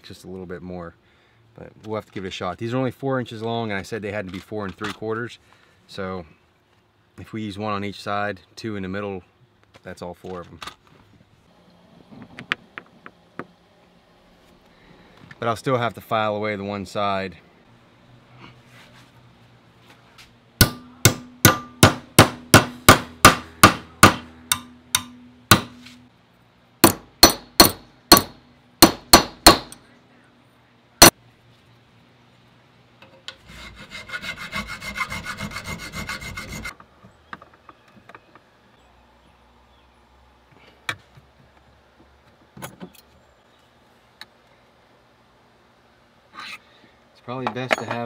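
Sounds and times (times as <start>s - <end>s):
hammer striking steel: 20.6s - 26.0s, 26.8s - 29.8s
metal file rasping on steel: 33.4s - 36.7s.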